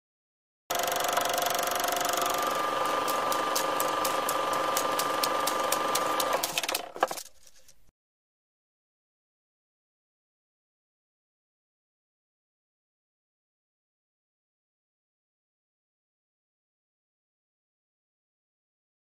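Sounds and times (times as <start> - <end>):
rapid even clicks: 0.7 - 7.3
machine whirring: 0.7 - 7.4.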